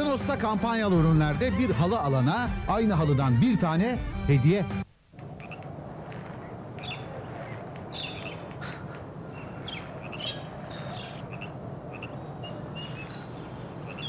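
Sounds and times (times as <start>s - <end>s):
low background noise: 0.0s - 14.0s
small birds chirping: 6.4s - 14.0s.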